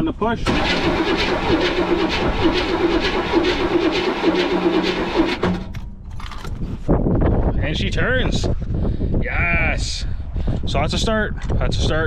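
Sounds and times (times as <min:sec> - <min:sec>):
engine cranking on starter motor: 0:00.4 - 0:05.9.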